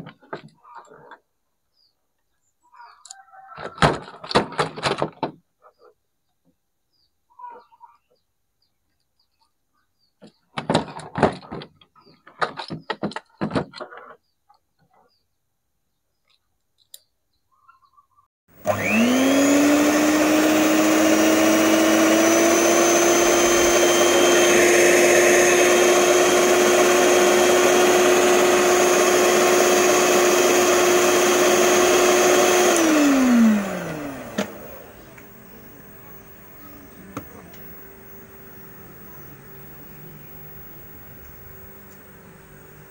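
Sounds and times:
hand mixer motor running: 0:18.6 - 0:42.9.

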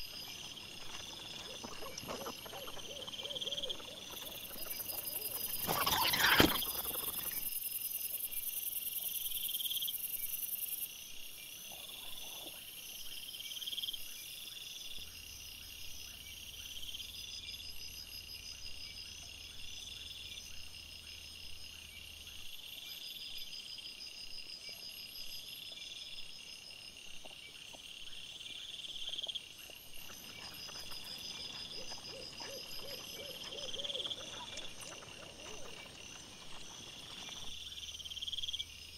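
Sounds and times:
night insects chirping: 0:00.0 - 0:38.9.

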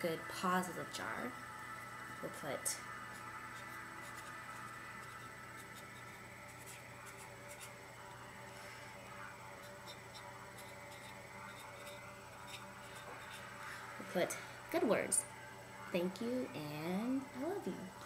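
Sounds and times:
marker pen scratching on tape: 0:03.6 - 0:07.8, 0:09.6 - 0:13.6.

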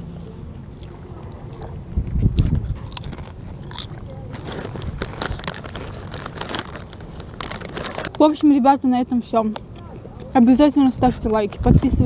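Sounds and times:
potato chips crunching: 0:00.1 - 0:08.2.

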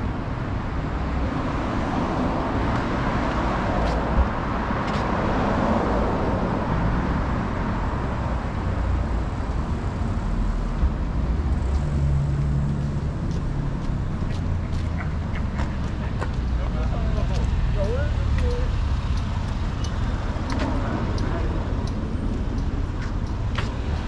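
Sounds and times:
rumble of traffic: 0:00.0 - 0:24.0.

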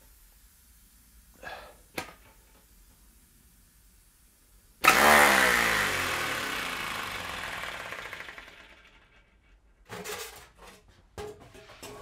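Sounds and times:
small air engine chattering: 0:04.8 - 0:09.3.

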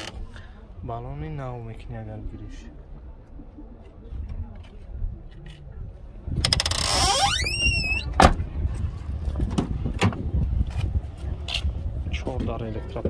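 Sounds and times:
door hinge squealing: 0:06.5 - 0:08.2.

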